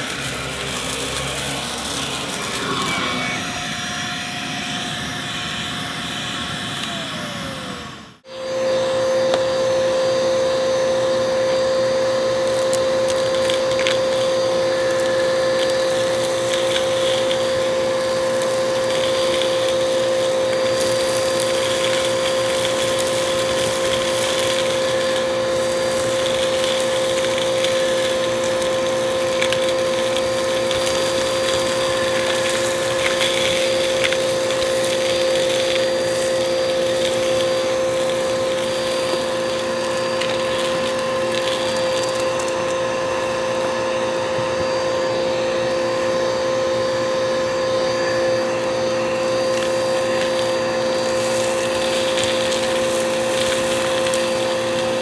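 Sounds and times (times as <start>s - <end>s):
vacuum cleaner motor hum: 0.0s - 55.0s
crackles of debris sucked up: 12.4s - 43.6s, 49.1s - 55.0s.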